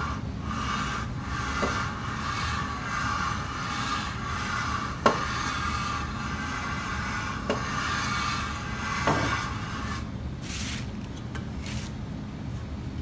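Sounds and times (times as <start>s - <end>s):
metal rubbing on sandpaper: 0.0s - 11.0s.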